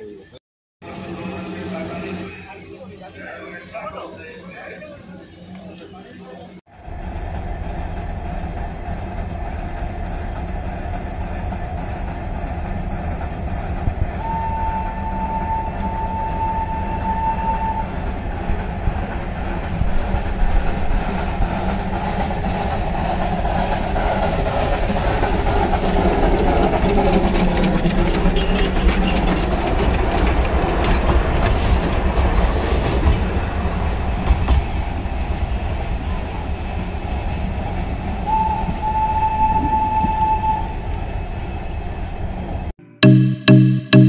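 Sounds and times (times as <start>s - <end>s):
steam locomotive running: 0.8s - 42.6s
steam whistle: 14.2s - 18.2s, 38.3s - 40.8s.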